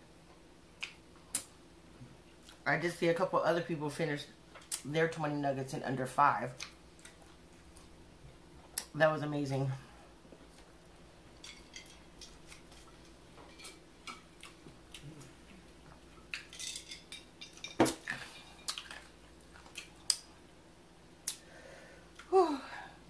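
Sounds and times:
chewing and mouth clicks: 0:06.6 - 0:07.9, 0:11.5 - 0:16.6, 0:18.6 - 0:20.3.

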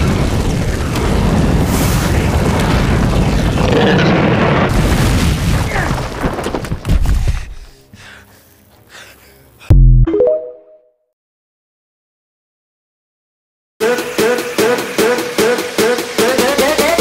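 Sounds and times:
rush of flame with booms: 0:00.0 - 0:07.4
dragon roar: 0:03.3 - 0:04.4.

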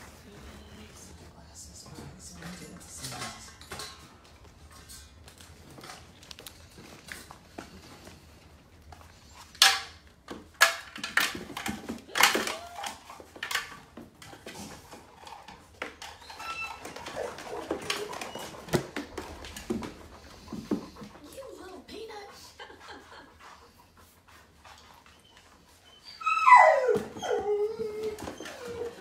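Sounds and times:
dog rustling and scuffing: 0:00.0 - 0:03.5.

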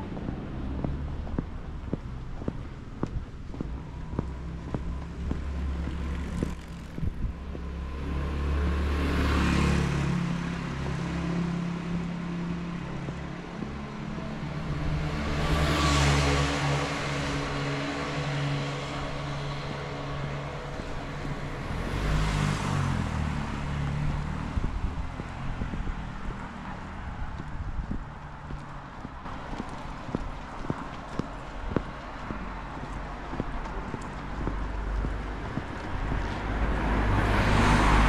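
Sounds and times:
cars passing: 0:00.0 - 0:38.0
footsteps tapping: 0:00.1 - 0:07.8, 0:10.8 - 0:14.0, 0:24.1 - 0:36.8.

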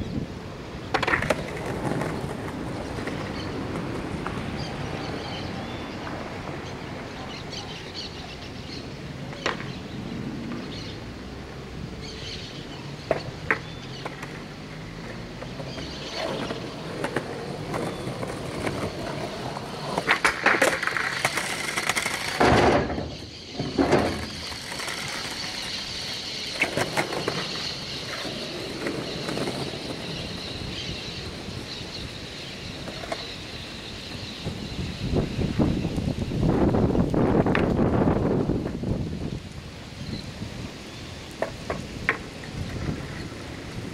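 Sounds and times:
skateboard wheels rolling: 0:00.0 - 0:43.9
skateboard clacking on concrete: 0:00.8 - 0:07.9, 0:09.1 - 0:09.8, 0:13.0 - 0:33.8, 0:41.3 - 0:43.9.

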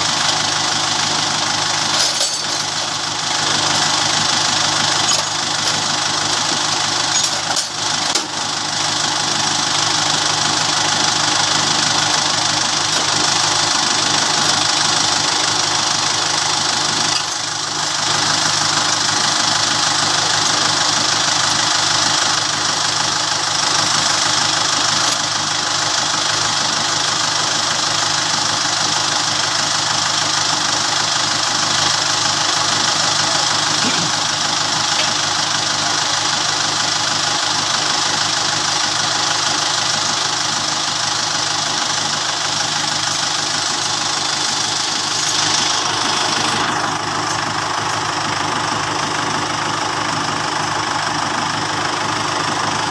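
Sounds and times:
tractor engine running: 0:00.0 - 0:52.9.

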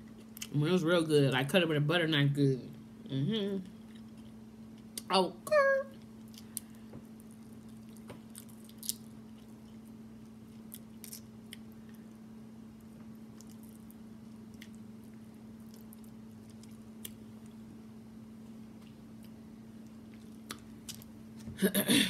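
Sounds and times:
chewing: 0:06.0 - 0:12.1, 0:13.3 - 0:17.6
crab shell cracking: 0:07.9 - 0:09.1.

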